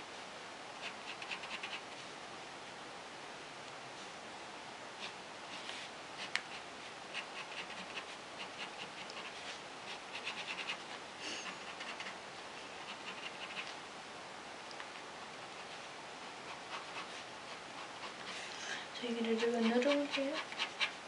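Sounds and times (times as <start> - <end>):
pen scratching on paper: 0.8 - 2.0, 5.0 - 13.8, 15.4 - 18.4, 19.2 - 21.0.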